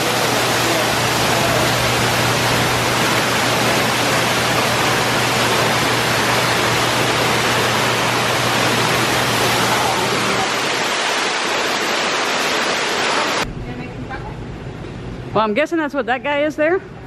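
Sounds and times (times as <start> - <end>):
waterfall rushing over rocks: 0.0 - 13.4.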